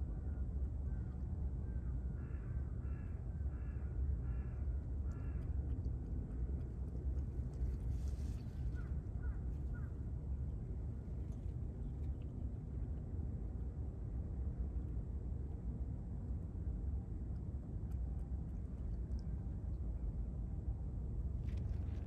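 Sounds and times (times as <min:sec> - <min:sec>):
steady low rumble: 0:00.0 - 0:22.0
crow cawing: 0:02.2 - 0:05.4.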